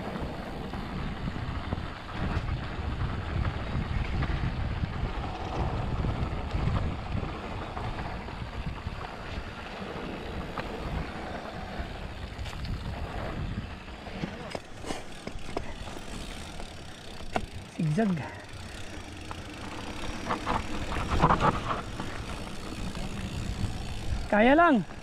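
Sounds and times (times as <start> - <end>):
wind buffeting the microphone: 0.0 - 14.3, 19.8 - 25.0
bike clicks and rattles: 0.0 - 25.0
bike tyres rumbling on dirt: 0.0 - 25.0.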